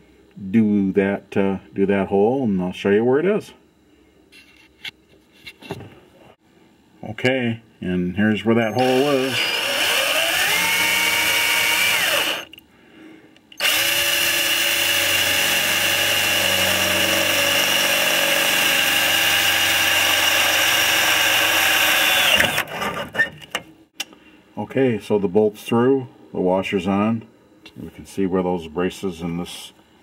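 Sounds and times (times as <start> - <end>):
cordless drill boring through steel: 8.8 - 12.5, 13.6 - 22.6.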